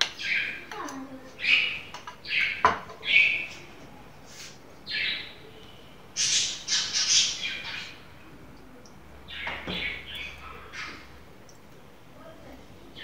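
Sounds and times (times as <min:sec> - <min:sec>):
bird chirping: 0:00.0 - 0:00.7, 0:01.4 - 0:03.7, 0:04.8 - 0:11.1.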